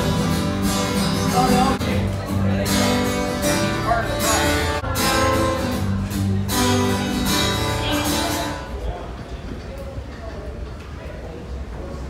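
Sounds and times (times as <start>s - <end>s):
acoustic guitar strummed: 0.0s - 8.8s.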